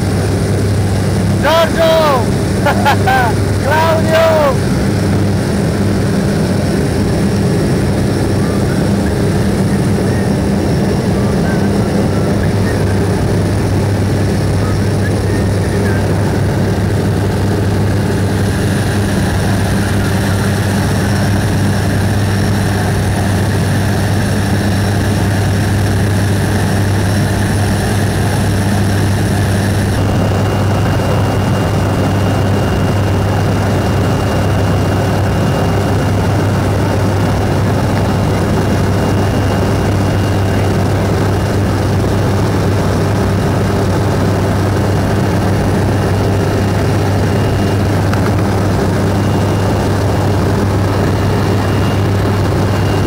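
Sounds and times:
noisy rush: 0:00.0 - 0:53.0
propeller plane engine drone: 0:00.0 - 0:53.0
faint high whine: 0:46.4 - 0:53.0.

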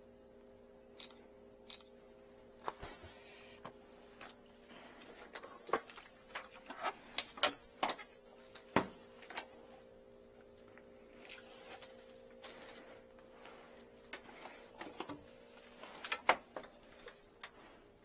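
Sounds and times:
faint steady hum: 0:00.0 - 0:18.0
hands handling gear clicks and rustles: 0:13.4 - 0:17.6.

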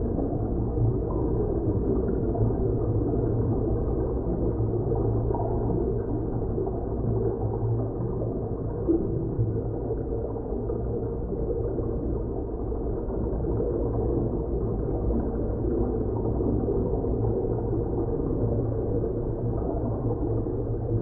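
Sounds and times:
deep rumbling drone: 0:00.0 - 0:21.0.

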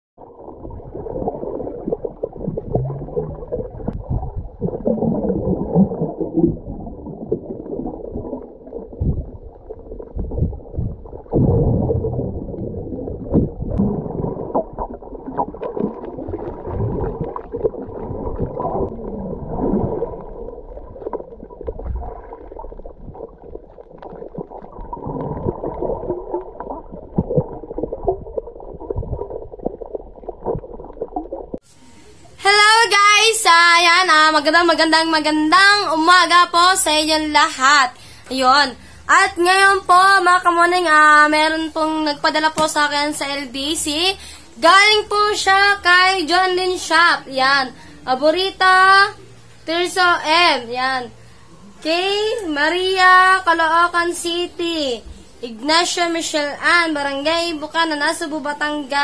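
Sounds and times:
underwater water gurgling: 0:00.2 - 0:32.4.

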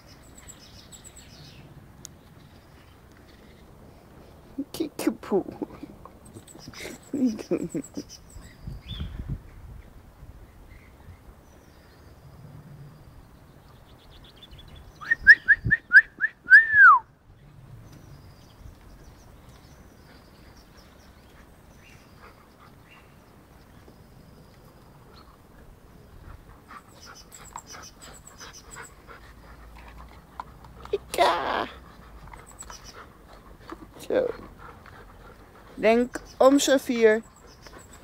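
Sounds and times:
person whistling: 0:15.0 - 0:17.0.

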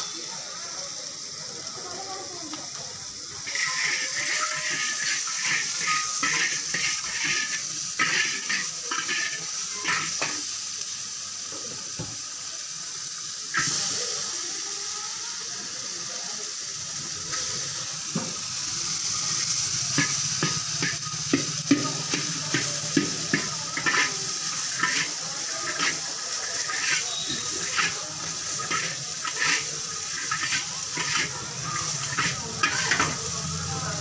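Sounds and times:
food sizzling in hot oil: 0:00.0 - 0:34.0
metal spatula scraping a wok: 0:03.5 - 0:10.4, 0:19.4 - 0:33.3.

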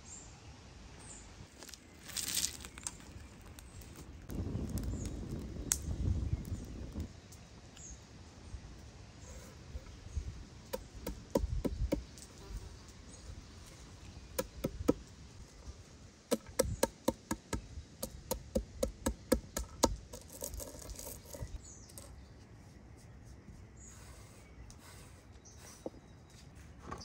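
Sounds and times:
gritty crunching of crushed nuts: 0:01.6 - 0:05.0
stone pounding nuts on wood: 0:16.3 - 0:20.5.

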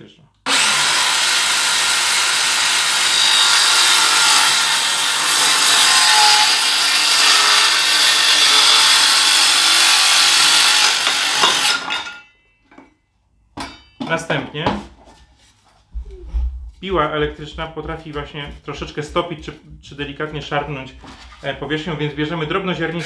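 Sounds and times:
circular saw cutting: 0:00.5 - 0:12.1
saw knocking: 0:00.5 - 0:12.2.

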